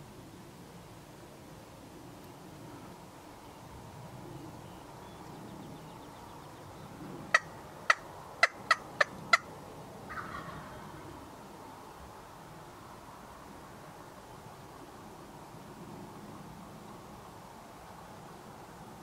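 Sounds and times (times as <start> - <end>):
turkey clucking: 7.3 - 9.5, 10.1 - 10.8.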